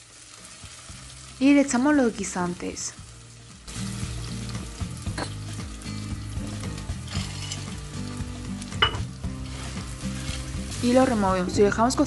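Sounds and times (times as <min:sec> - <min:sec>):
onion sizzling in hot oil: 0:00.0 - 0:12.0.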